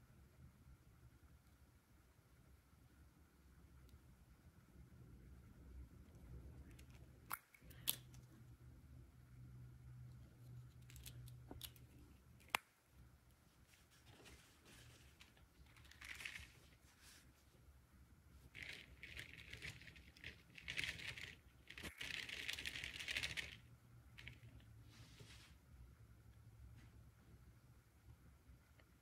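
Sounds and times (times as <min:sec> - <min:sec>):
rustling and crinkling: 0:13.3 - 0:17.7, 0:18.3 - 0:23.6
plastic toy pieces clicking: 0:18.6 - 0:23.6.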